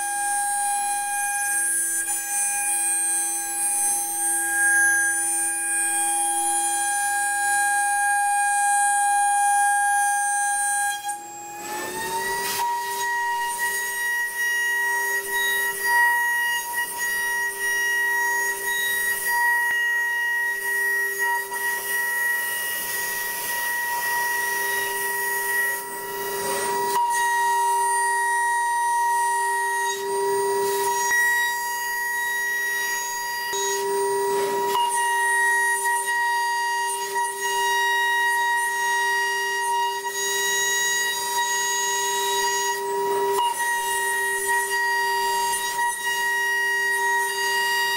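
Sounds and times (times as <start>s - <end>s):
milling spindle whining: 11.2s - 47.9s.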